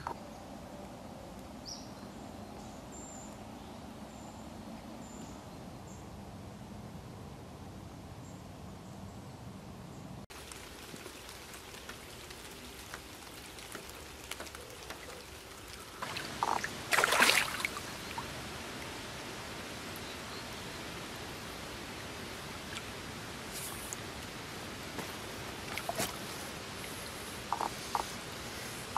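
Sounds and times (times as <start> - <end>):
light rain on a river: 0.0 - 8.2, 10.3 - 28.9
water splashing: 10.3 - 20.0, 20.8 - 28.9.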